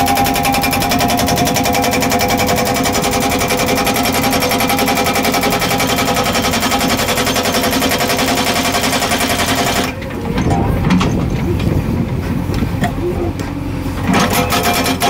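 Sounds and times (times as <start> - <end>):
machine humming: 0.0 - 7.3
hydraulic breaker hammering rock: 0.0 - 11.8, 13.4 - 15.0.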